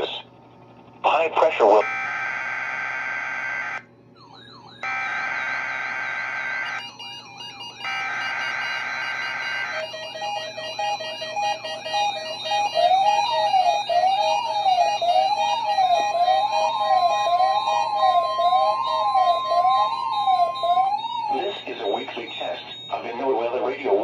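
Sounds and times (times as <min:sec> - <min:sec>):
alternating alert beeps: 0:04.2 - 0:24.0
digital data buzzing screeches: 0:15.2 - 0:24.0.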